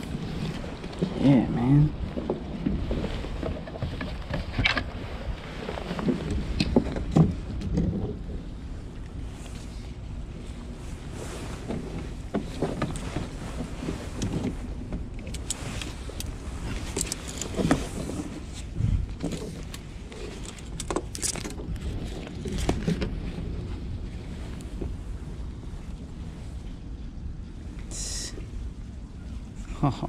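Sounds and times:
rain gear rustling: 0.0 - 27.8
wind rumble on microphone: 0.0 - 30.0
light clicks and clinks: 15.2 - 17.8.

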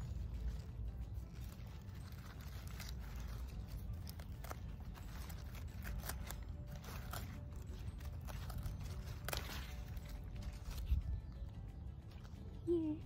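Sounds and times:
lettuce leaves rustling: 0.0 - 12.8
low steady rumble: 0.0 - 13.0
scissors snipping stems: 2.3 - 11.0.

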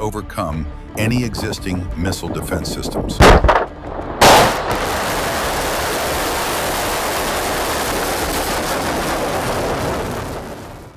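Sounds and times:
sharp blast: 3.2 - 10.7
rocket exhaust rushing: 3.4 - 10.9.

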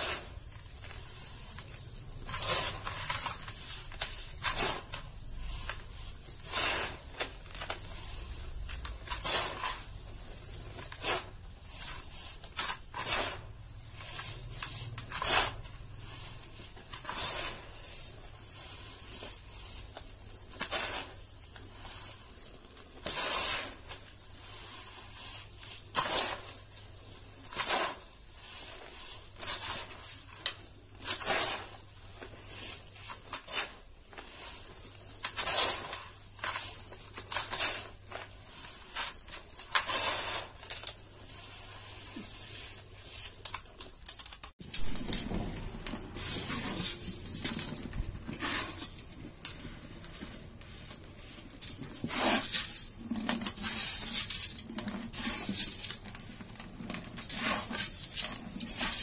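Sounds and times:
sand falling into bowl: 0.0 - 59.0.

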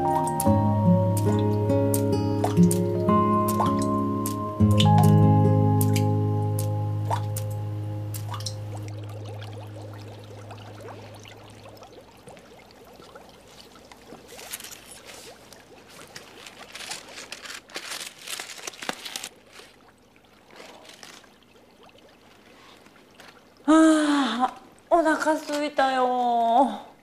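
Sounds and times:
music: 0.0 - 9.2
water splashing and trickling: 0.0 - 26.8.

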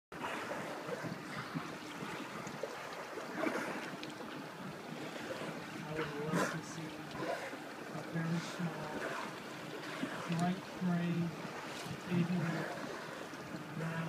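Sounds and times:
sea water splashing around boat: 0.1 - 14.0.

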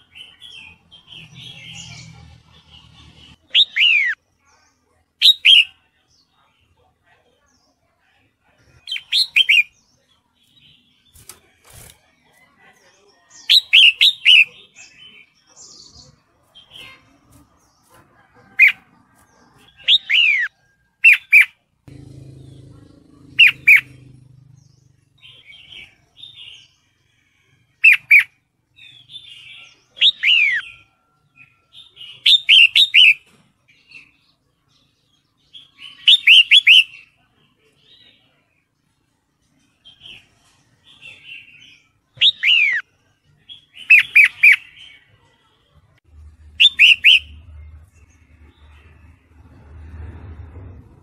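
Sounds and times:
bulbul calling: 19.7 - 26.5, 46.6 - 47.4.

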